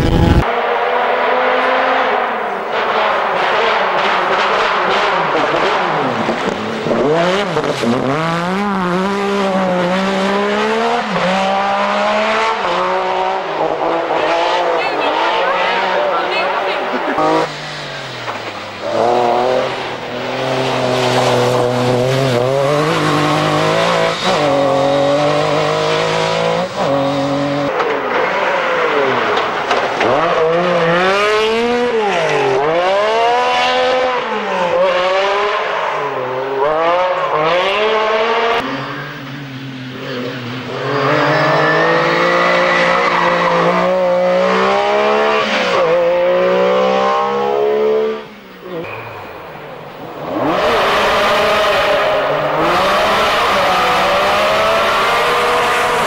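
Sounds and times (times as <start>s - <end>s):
rally car engines revving hard: 0.0s - 56.0s.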